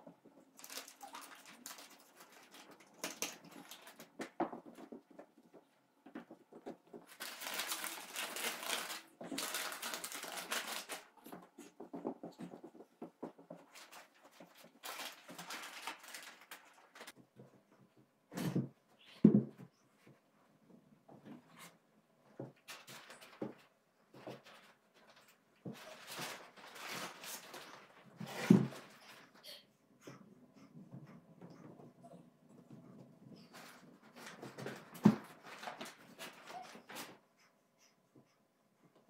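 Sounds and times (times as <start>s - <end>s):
crumpled paper rustling: 0.6s - 4.4s, 6.9s - 11.4s, 13.6s - 17.2s, 22.6s - 29.4s, 33.5s - 37.2s.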